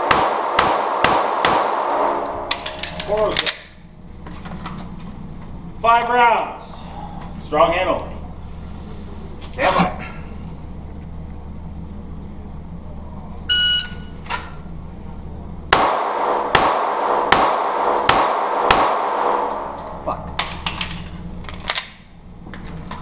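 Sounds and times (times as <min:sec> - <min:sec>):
pistol shots echoing: 0:00.0 - 0:03.2, 0:15.7 - 0:19.8
shot timer beep: 0:13.5 - 0:14.1.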